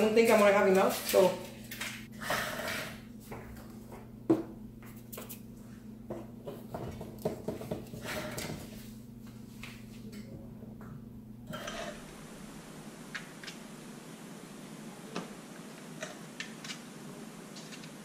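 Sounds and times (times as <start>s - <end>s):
low steady hum: 0.0s - 18.0s.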